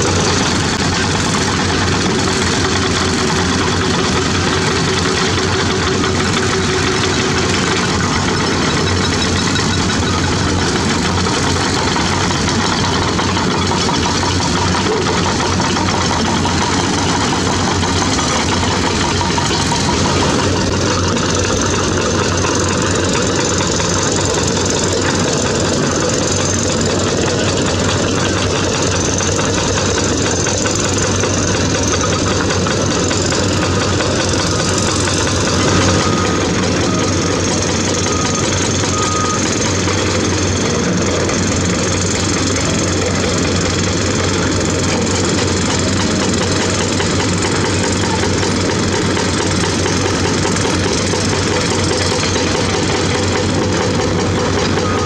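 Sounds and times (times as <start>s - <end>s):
drilling rig engine running: 0.0s - 55.0s.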